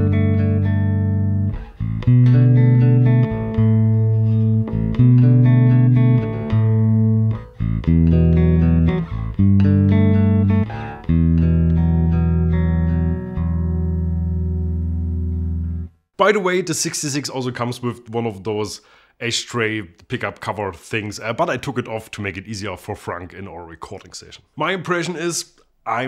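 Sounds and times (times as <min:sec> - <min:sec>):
electric bass chords: 0:00.0 - 0:16.0.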